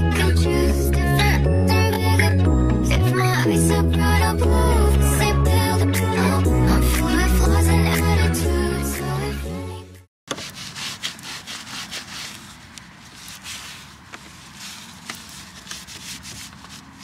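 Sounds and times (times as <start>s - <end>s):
music: 0.0s - 10.1s
hand scrubbing a surface: 10.3s - 17.0s.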